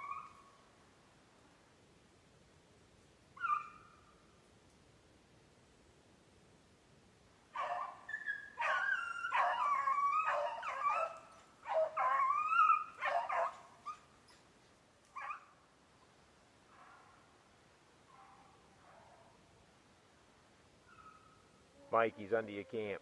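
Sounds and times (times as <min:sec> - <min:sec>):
dog baying and howling: 0:00.0 - 0:00.4, 0:03.4 - 0:03.8, 0:07.6 - 0:14.0.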